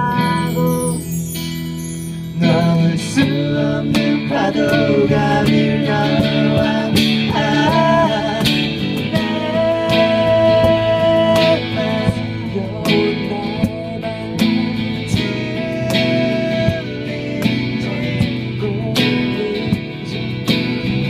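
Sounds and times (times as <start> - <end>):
person singing: 0.0 - 1.3, 2.4 - 20.5
bar chimes shimmer: 0.0 - 3.2
strummed acoustic guitar: 0.0 - 21.0
cajon beating time: 2.2 - 21.0.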